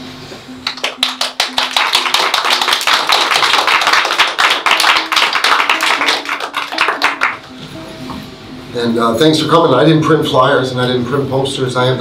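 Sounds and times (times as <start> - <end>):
audience applause: 0.6 - 7.5.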